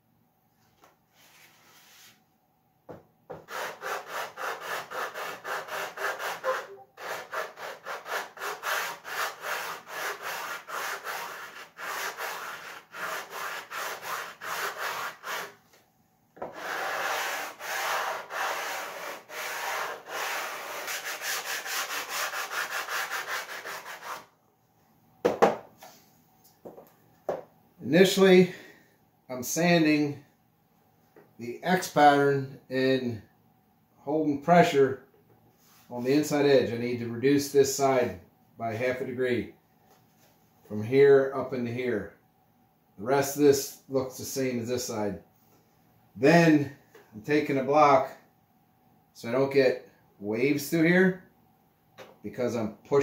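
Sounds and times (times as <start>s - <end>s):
sandpaper rubbing wood: 1.2s - 2.2s, 3.4s - 15.6s, 16.4s - 24.3s.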